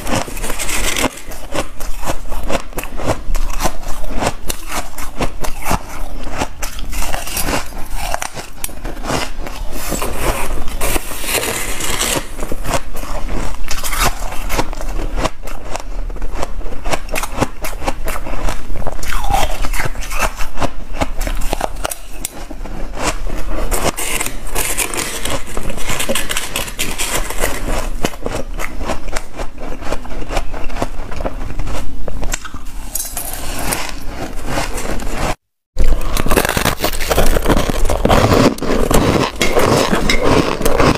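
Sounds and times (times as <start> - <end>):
plastic spoon scraping ice: 0.0 - 40.9
shaved ice being chewed: 0.0 - 40.9.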